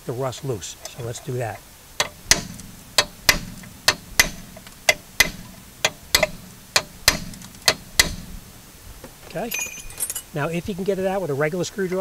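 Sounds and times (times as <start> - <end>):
hammer striking metal: 2.0 - 8.4.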